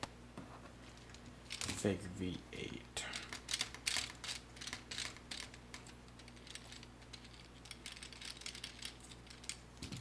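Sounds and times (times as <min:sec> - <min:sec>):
plastic parts clicking and rattling: 0:01.0 - 0:01.8, 0:03.1 - 0:10.0.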